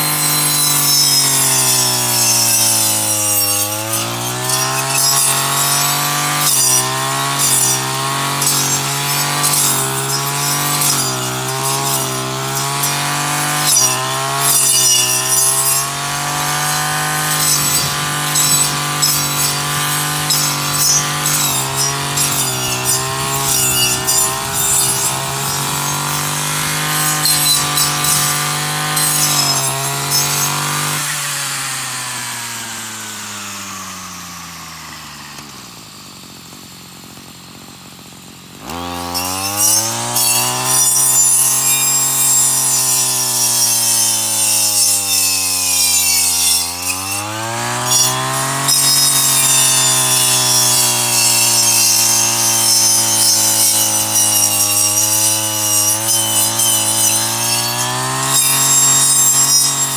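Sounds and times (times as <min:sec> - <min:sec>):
brush cutter engine running: 0:00.0 - 0:59.9
blade hissing through grass: 0:47.9 - 0:57.7.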